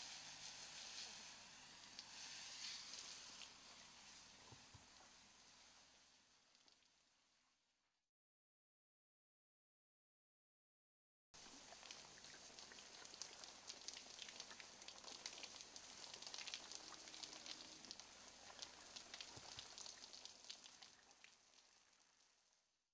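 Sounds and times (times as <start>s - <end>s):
water spray pattering: 0.0s - 5.1s.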